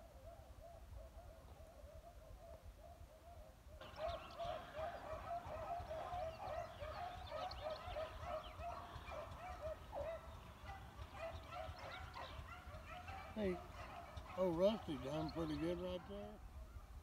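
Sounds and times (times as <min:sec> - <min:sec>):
dogs baying: 0:01.0 - 0:16.4.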